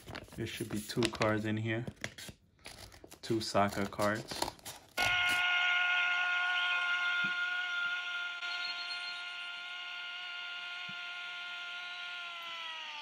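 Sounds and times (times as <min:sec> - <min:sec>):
small electric motor whining: 0:08.4 - 0:13.0.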